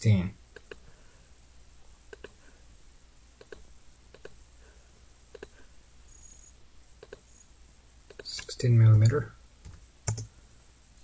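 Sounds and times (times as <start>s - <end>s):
faint low hum: 0.0s - 11.0s
computer mouse clicking: 0.6s - 0.8s, 2.1s - 2.4s, 3.4s - 4.4s, 5.3s - 5.6s, 7.0s - 7.3s, 8.1s - 10.3s.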